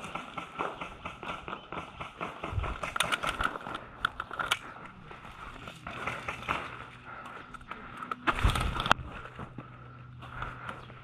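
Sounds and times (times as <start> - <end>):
footsteps on sandy ground: 4.7 - 11.0.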